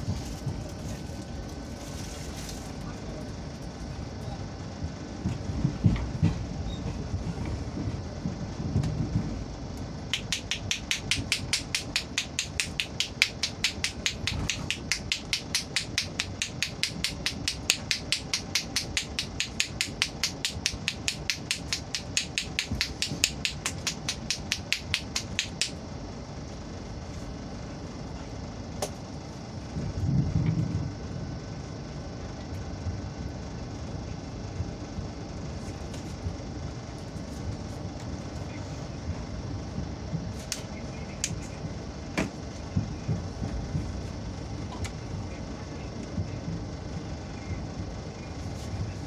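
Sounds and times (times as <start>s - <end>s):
hands clapping on head: 10.2s - 25.8s.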